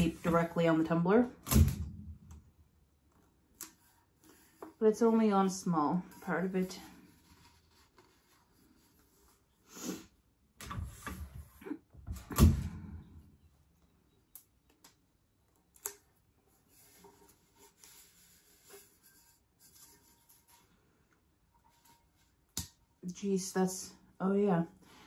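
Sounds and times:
paper rustling: 6.1 - 9.4.

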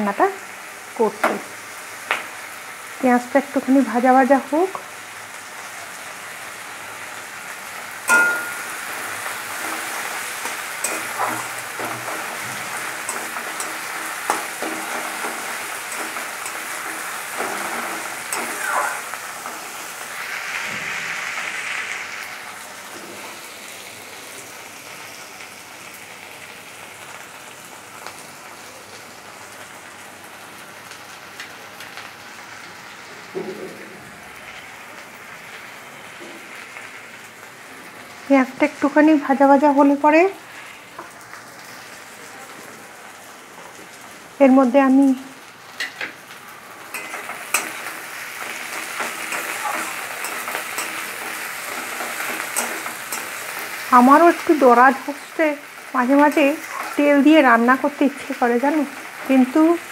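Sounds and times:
onions sizzling in oil: 0.0 - 59.9
metal spatula scraping pan: 8.1 - 19.7.

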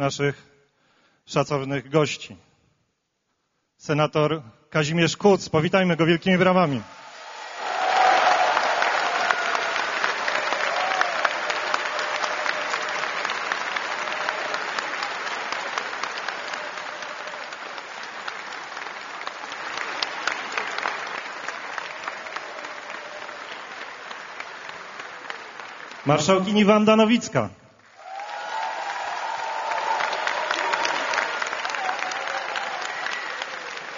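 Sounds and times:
large audience applauding: 6.9 - 27.1, 27.8 - 33.9.

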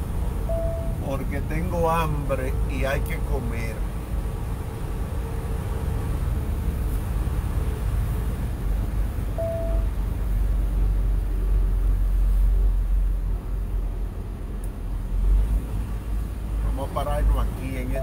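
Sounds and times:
road and engine noise in a cabin: 0.0 - 18.0
short single tone: 0.5 - 1.0, 9.3 - 9.9.

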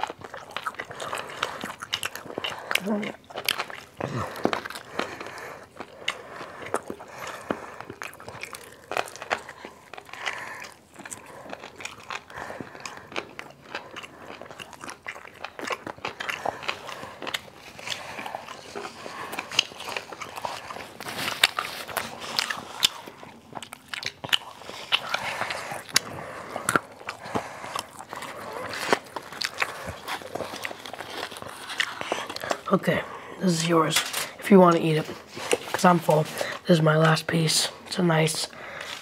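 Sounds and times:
crunching fried chicken: 0.0 - 32.7
chewing: 0.0 - 39.0.

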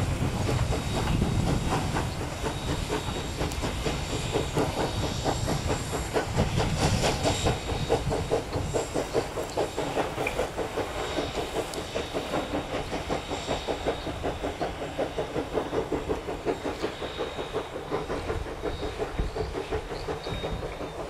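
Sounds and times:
carriages running on track: 0.0 - 21.0
steam hissing: 0.0 - 21.0
steam locomotive exhaust beats: 0.0 - 21.0.

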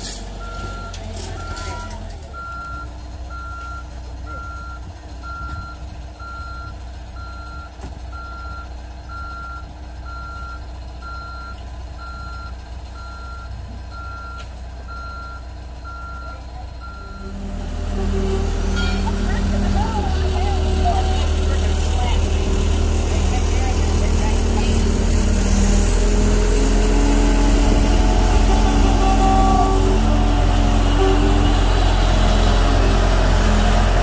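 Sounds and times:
engine rumbling: 0.0 - 34.0
reversing alarm beeping: 0.4 - 22.0, 25.9 - 34.0.

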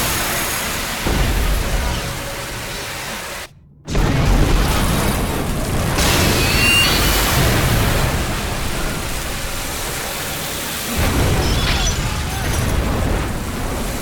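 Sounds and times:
rushing hiss of spray: 0.0 - 3.5, 6.3 - 13.1
high metallic squeal: 6.3 - 7.3.

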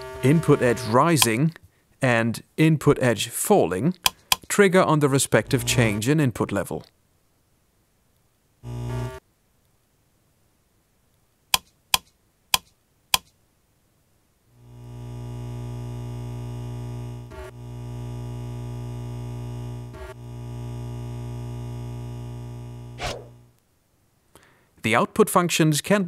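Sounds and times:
low synthetic buzz: 0.0 - 1.1, 5.4 - 6.0, 8.6 - 9.2, 14.6 - 23.6
rotary switch clicks: 4.0 - 4.5
short buzzing tone: 8.6 - 9.2.

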